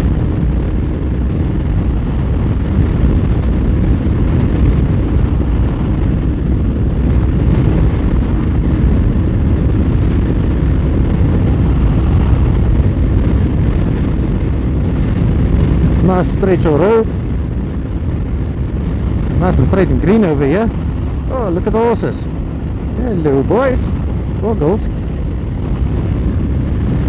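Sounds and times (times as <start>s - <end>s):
motorcycle engine cruising: 0.0s - 27.0s
wind buffeting microphone: 0.0s - 27.0s.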